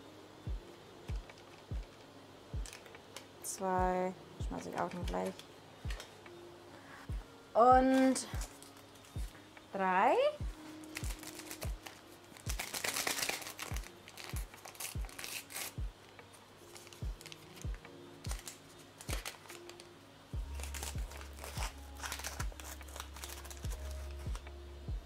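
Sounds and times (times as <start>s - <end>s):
background music with deep beat: 0.4s - 3.1s, 3.8s - 9.7s, 10.4s - 19.4s, 20.3s - 25.0s
packaging crinkling: 2.6s - 3.3s, 7.9s - 9.2s, 10.6s - 15.8s, 16.6s - 19.9s, 20.5s - 24.4s.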